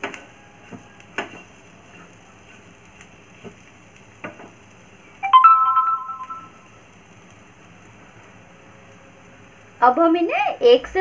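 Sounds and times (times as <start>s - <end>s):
wooden spatula knocking on pan: 0.0s - 1.5s, 4.2s - 4.6s
short electronic chime: 5.2s - 6.5s.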